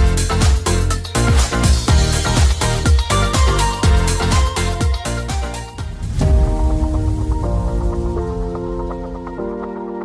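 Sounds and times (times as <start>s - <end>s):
electronic dance music: 0.0s - 6.8s
kick drum beat: 1.3s - 8.5s.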